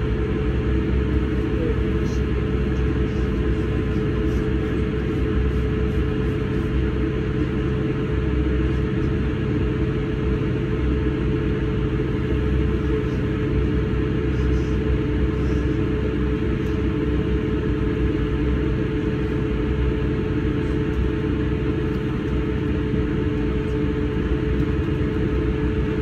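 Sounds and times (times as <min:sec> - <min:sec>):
constant hum: 0:00.0 - 0:26.0
diesel train rumble and drone: 0:00.0 - 0:26.0.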